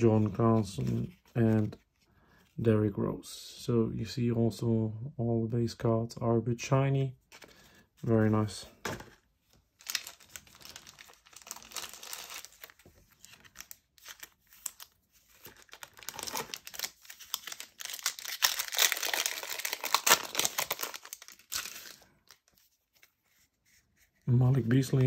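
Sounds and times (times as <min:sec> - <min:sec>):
foil wrapper tearing and crinkling: 0:09.8 - 0:22.5.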